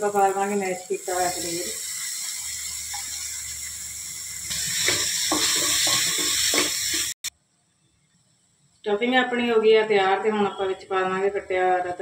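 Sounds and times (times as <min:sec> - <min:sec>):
food sizzling in a pan: 0:00.0 - 0:07.3
wooden spatula scraping: 0:04.5 - 0:07.1.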